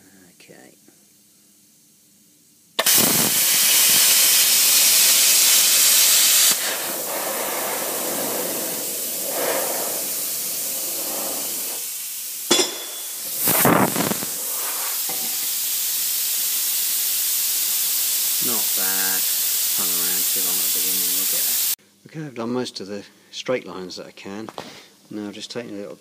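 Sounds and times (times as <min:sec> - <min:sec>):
plasma cutter hissing: 0:02.8 - 0:21.8.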